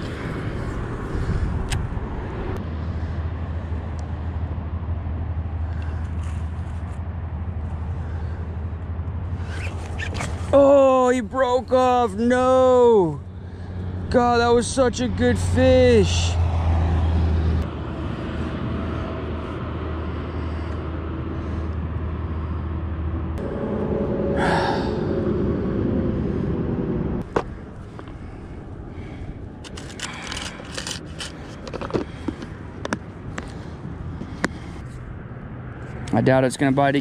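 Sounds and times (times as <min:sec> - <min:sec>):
low hum: 0:00.0 - 0:36.8
rushing background noise: 0:00.0 - 0:37.0
fishing line clicks and scrapes: 0:09.4 - 0:10.5, 0:29.6 - 0:33.6.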